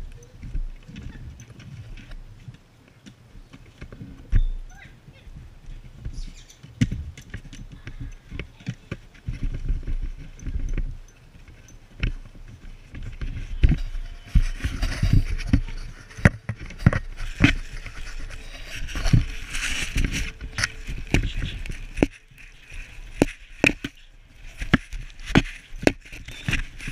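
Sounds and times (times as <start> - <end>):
knocks and scrapes on camera: 5.7 - 26.9.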